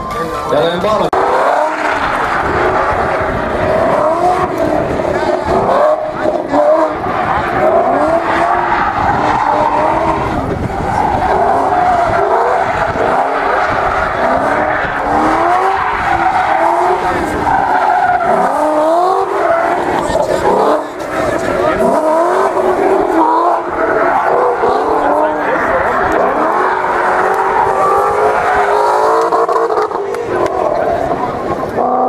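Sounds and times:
tyres squealing on asphalt: 0:00.0 - 0:32.0
car engine revving hard: 0:01.0 - 0:32.0.

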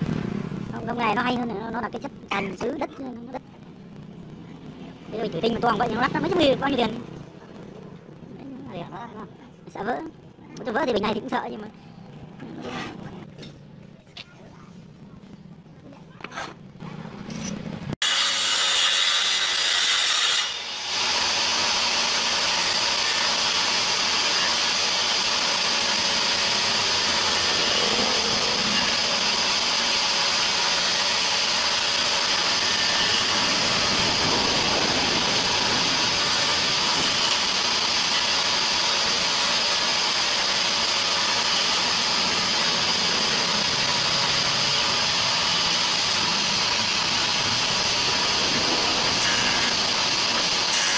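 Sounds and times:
table saw cutting wood: 0:18.0 - 0:50.9.

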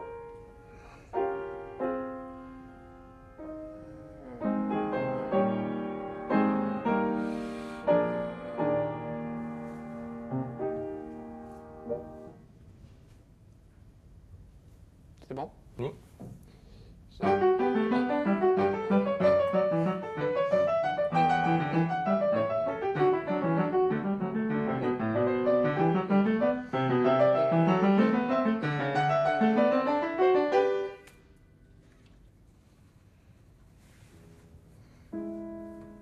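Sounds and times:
upright piano melody: 0:00.0 - 0:00.6, 0:01.2 - 0:12.4, 0:17.2 - 0:31.0.

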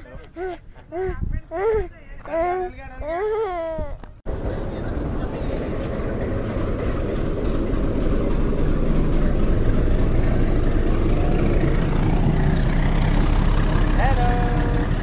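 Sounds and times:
diesel locomotive engine rumble: 0:04.3 - 0:15.0.

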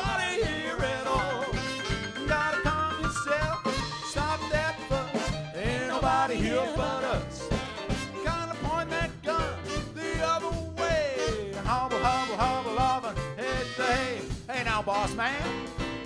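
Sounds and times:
trumpet: 0:00.0 - 0:15.8
drums: 0:00.0 - 0:16.0
piano: 0:00.0 - 0:16.0
upright bass: 0:00.0 - 0:16.0
saxophone: 0:01.3 - 0:02.7, 0:07.4 - 0:08.5, 0:09.3 - 0:14.3.

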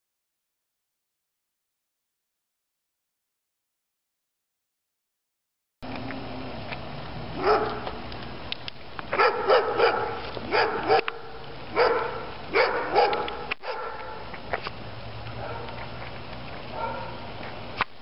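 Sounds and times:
dog barking: 0:07.4 - 0:07.8, 0:09.2 - 0:14.2, 0:15.4 - 0:15.8, 0:16.8 - 0:17.2.

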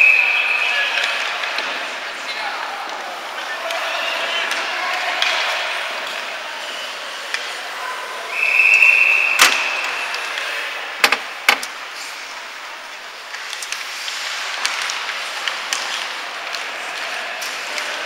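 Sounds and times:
ice rink background noise: 0:00.0 - 0:18.0
referee's whistle blast: 0:08.4 - 0:10.0
sticks and puck knocking: 0:11.0 - 0:11.7.

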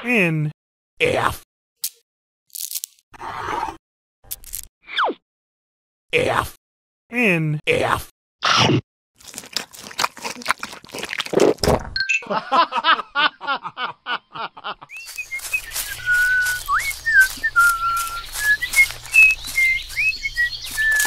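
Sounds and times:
crisp crunching clicks: 0:04.3 - 0:04.7, 0:09.2 - 0:11.8, 0:15.0 - 0:21.0
bird-like whistles: 0:14.9 - 0:21.0
low forest ambience: 0:14.9 - 0:21.0
wobbly squeaky chirps: 0:14.9 - 0:21.0.

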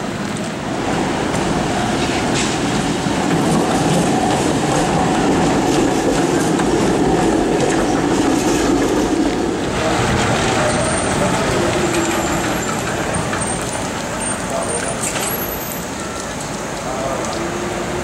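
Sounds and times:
tram wheels rumbling on rails: 0:00.0 - 0:18.0.

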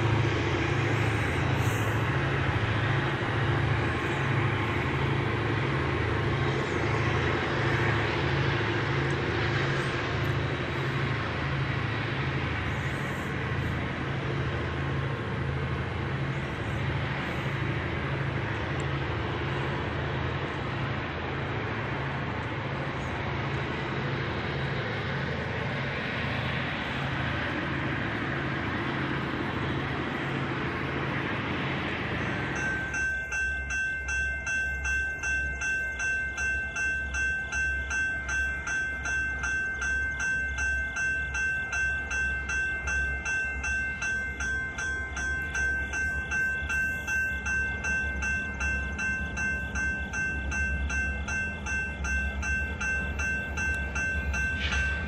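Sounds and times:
diesel locomotive engine working: 0:00.0 - 0:55.0
bell ringing: 0:32.5 - 0:55.0.

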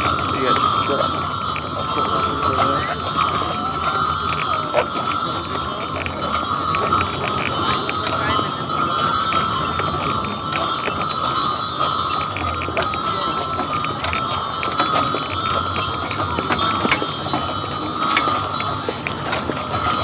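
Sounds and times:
harness bells jingling: 0:00.0 - 0:20.0
wagon rumbling: 0:00.0 - 0:20.0.

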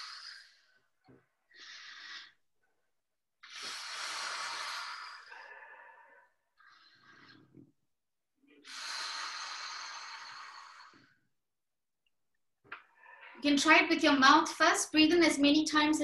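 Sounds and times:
person breathing deeply: 0:00.0 - 0:00.9, 0:01.5 - 0:02.4, 0:03.4 - 0:07.6, 0:08.6 - 0:11.2.

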